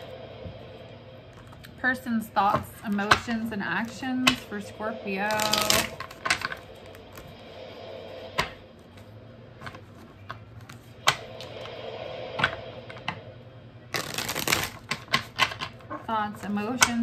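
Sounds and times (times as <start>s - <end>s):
cards being shuffled: 5.3s - 6.6s, 13.9s - 15.6s.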